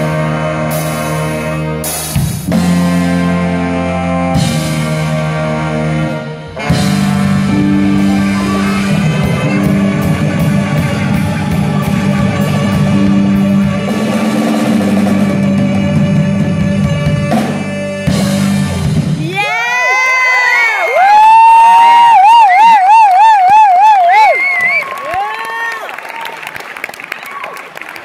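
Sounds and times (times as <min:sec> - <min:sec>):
live rock band playing: 0:00.0 - 0:19.6.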